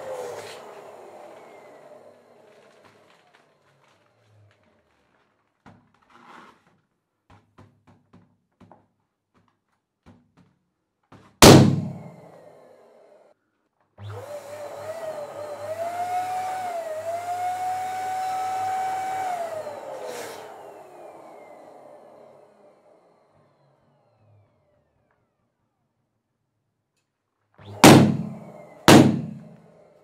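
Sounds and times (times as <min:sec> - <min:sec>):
electric balloon pump whine: 0:00.0 - 0:03.4, 0:11.4 - 0:13.2, 0:14.0 - 0:25.8, 0:27.6 - 0:30.0
balloon popping: 0:11.4 - 0:12.1, 0:27.8 - 0:29.5.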